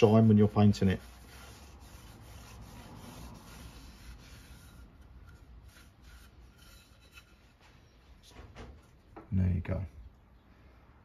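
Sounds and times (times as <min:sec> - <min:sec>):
cloth rubbing on wood: 0:00.0 - 0:07.9.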